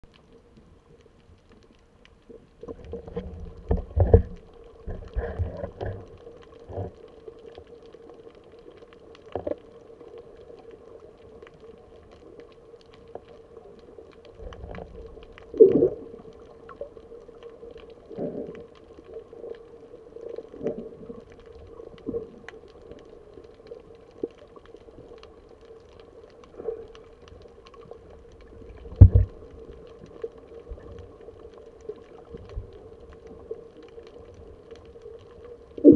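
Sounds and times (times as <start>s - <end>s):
steady underwater hum: 0.0s - 35.9s.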